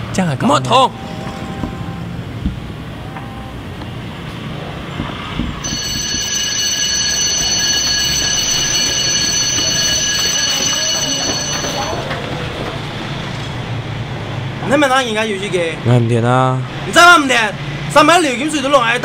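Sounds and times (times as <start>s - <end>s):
electric school bell ringing: 5.6s - 12.3s.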